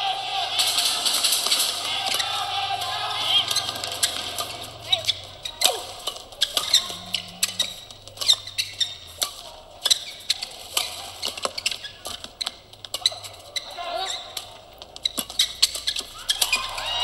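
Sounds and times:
rackets hitting shuttlecock: 0.5 - 17.0
shoes squeaking on court: 3.4 - 17.0.

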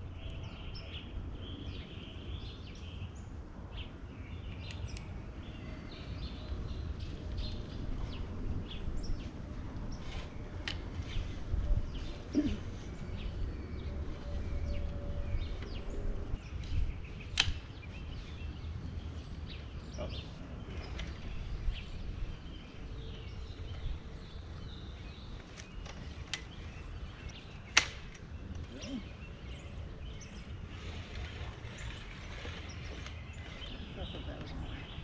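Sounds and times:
wind rumbling on microphone: 0.0 - 35.0
flagpole sections clicking into place: 16.6 - 17.9, 27.2 - 28.8.

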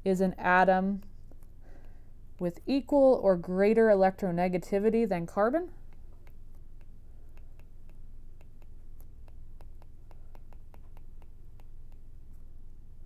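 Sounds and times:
low steady hum: 0.0 - 13.0
stylus tapping on tablet: 5.8 - 12.4.

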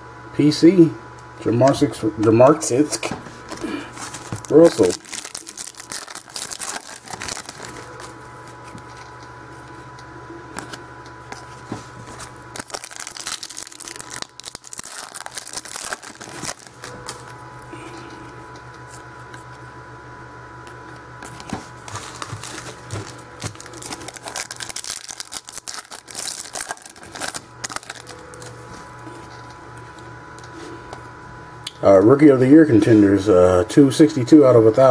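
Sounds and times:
cards shuffled by hand: 3.4 - 9.8, 10.6 - 17.4, 21.2 - 29.4.

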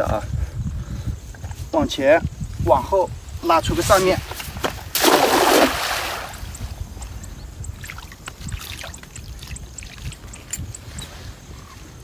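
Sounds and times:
water rippling: 4.0 - 11.0
net splashing into water: 4.9 - 6.4.

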